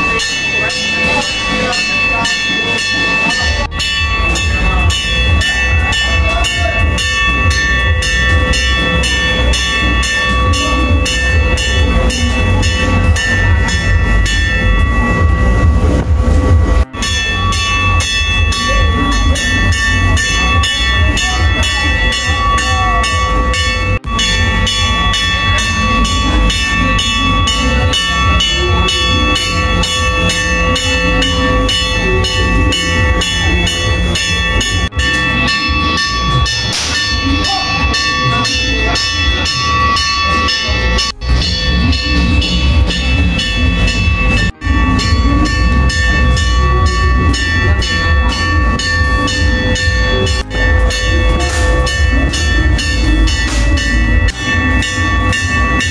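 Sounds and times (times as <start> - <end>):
cymbals clashing: 0.0 - 55.9
gongs ringing: 0.0 - 55.9.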